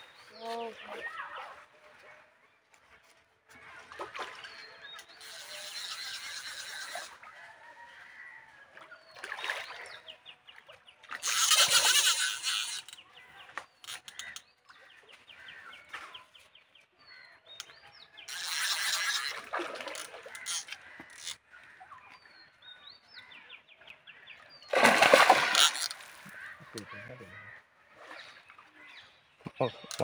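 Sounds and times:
fish thrashing and splashing: 18.3s - 21.3s, 24.7s - 26.6s.

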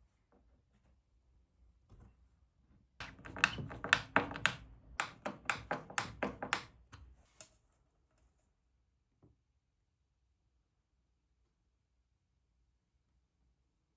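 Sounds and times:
screwdriver clicks and taps: 3.0s - 6.7s.

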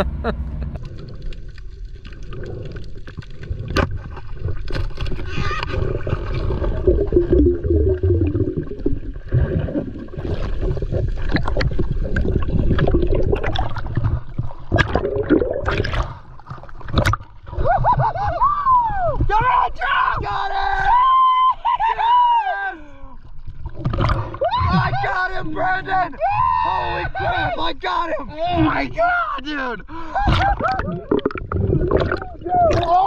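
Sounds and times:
low underwater rumble: 0.0s - 18.2s, 30.3s - 32.9s
underwater gurgling and rushing water: 0.8s - 18.2s, 23.2s - 25.0s, 30.2s - 33.0s.

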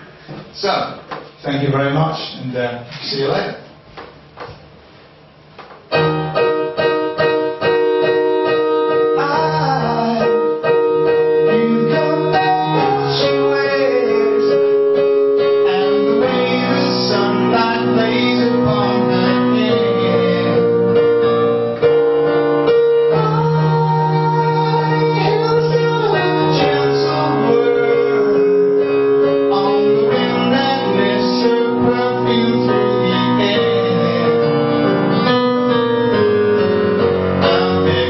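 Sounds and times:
digital piano chords: 5.3s - 38.0s
man singing: 9.0s - 21.0s, 23.0s - 34.8s, 37.4s - 38.0s.

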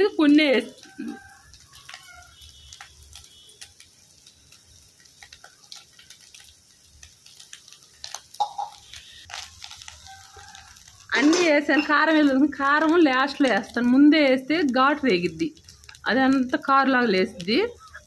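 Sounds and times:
faint frying sizzle: 0.0s - 18.0s
spoon tapping metal pan: 11.1s - 13.0s.

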